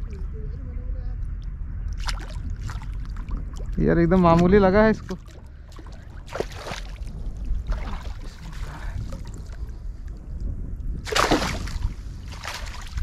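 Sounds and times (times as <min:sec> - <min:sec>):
fish splashing in water: 0:01.9 - 0:03.8, 0:05.2 - 0:09.4, 0:11.1 - 0:13.0.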